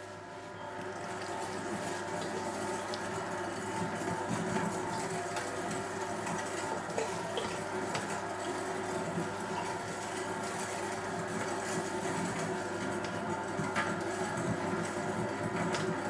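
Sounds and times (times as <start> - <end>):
electric meat mincer running: 0.7 - 16.0.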